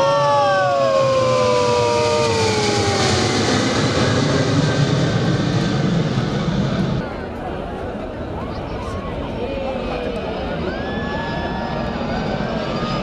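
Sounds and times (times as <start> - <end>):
whining jet engine tones: 0.0 - 7.1, 9.8 - 13.0
jet aircraft roar: 0.0 - 13.0.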